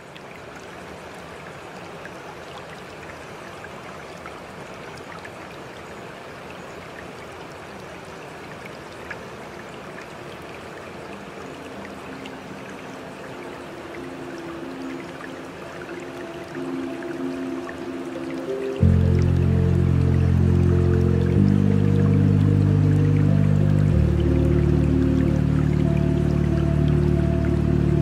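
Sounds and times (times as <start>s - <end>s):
faint water drips: 0.0s - 28.0s
running water hiss: 0.0s - 28.0s
soft sustained music notes: 11.5s - 28.0s.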